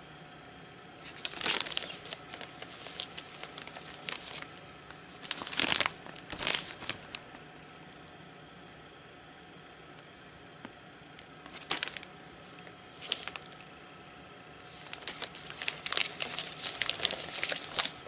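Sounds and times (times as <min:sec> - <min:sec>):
plastic sleeves crinkling: 0:01.0 - 0:07.4, 0:11.4 - 0:13.7, 0:14.5 - 0:18.0.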